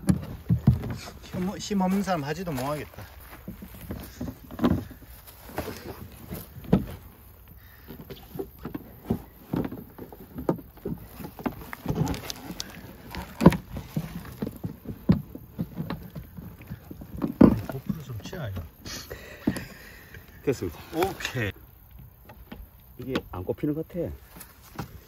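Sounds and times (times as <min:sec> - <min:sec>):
stiff plastic sheet bending: 0:08.1 - 0:18.6.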